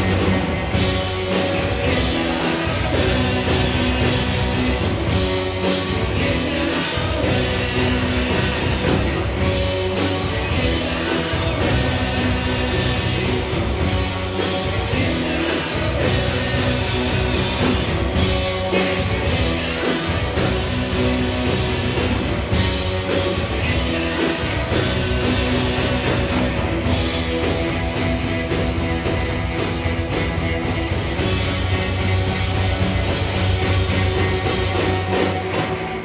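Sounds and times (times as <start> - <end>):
rock band playing live: 0.0 - 36.0.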